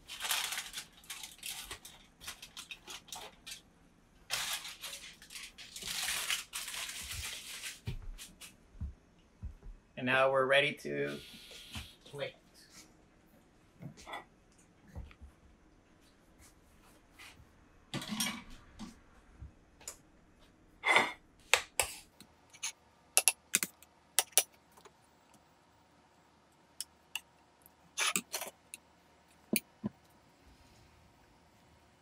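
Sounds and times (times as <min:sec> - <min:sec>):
metal spoon clinking and scraping: 0:22.5 - 0:24.4, 0:28.0 - 0:28.8.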